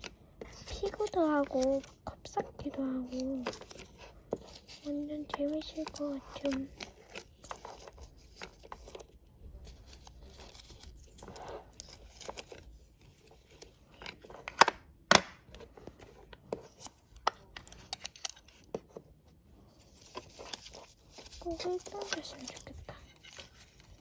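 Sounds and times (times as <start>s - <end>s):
sticker paper rustling and peeling: 0.0s - 14.5s, 19.7s - 24.0s.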